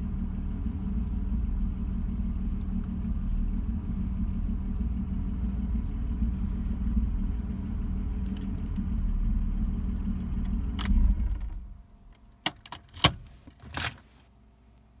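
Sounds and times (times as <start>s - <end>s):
car engine idling: 0.0s - 12.4s
keys jingling: 12.5s - 14.0s.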